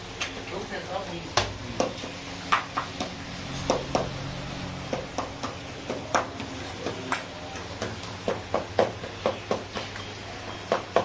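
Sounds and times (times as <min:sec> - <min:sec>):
low steady hum: 0:00.0 - 0:08.3.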